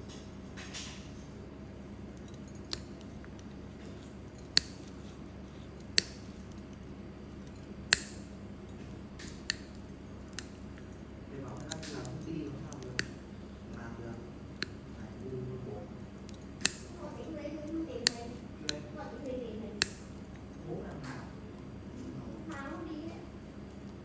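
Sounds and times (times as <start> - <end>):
steady low hum: 0.0 - 24.0
nail nippers clicking: 2.1 - 6.8, 7.4 - 10.9, 11.5 - 13.2, 16.2 - 17.0, 19.8 - 20.4.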